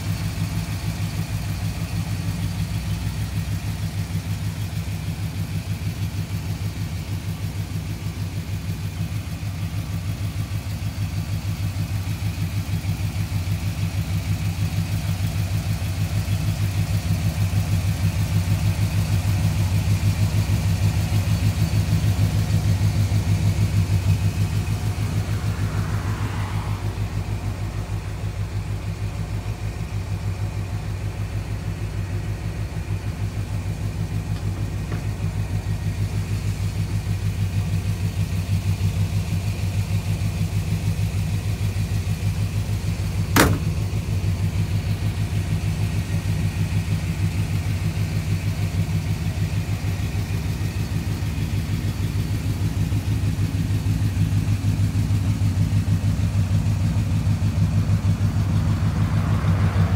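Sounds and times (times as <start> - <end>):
truck engine idling: 0.0 - 59.9
sharp click: 43.4 - 43.8.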